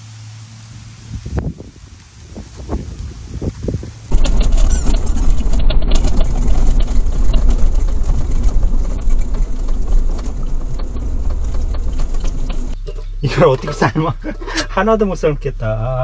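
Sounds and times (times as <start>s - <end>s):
engine and road rumble: 0.0s - 16.0s
small ticks and rattles: 2.0s - 13.2s.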